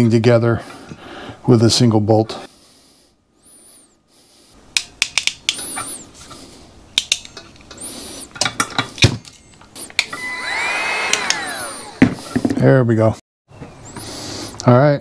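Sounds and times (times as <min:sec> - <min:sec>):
crimping tool metallic clicks: 0:04.8 - 0:06.0, 0:07.0 - 0:10.2.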